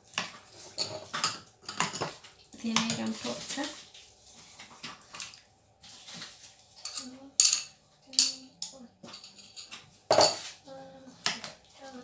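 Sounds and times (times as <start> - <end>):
glassware knock: 10.1 - 10.4.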